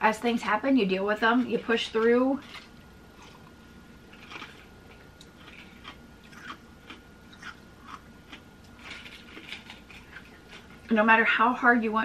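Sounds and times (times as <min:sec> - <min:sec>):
chewing ice crunches: 0:04.1 - 0:04.7, 0:05.3 - 0:10.9.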